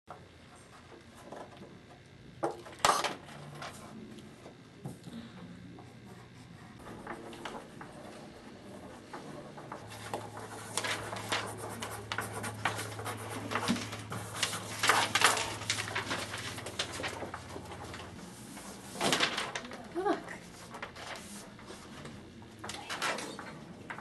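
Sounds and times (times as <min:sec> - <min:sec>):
steady low hum: 0:00.1 - 0:24.0
pencils scratching on paper: 0:05.8 - 0:19.0
paper rustling: 0:06.8 - 0:24.0.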